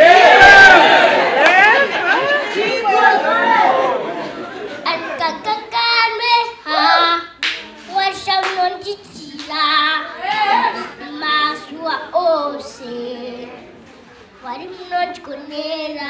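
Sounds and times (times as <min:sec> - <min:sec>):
boy singing into a microphone: 0:04.8 - 0:13.7, 0:14.4 - 0:16.0.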